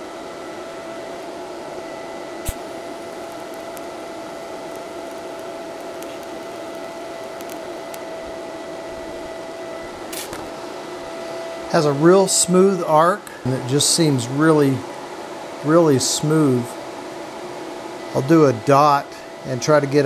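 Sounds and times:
cooling fan whirring: 0.0 - 20.0
sharp click: 2.4 - 2.6.

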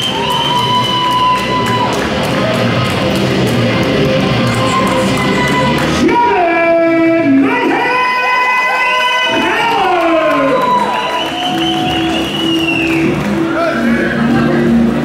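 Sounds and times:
rock music with electric guitar: 1.6 - 7.8.

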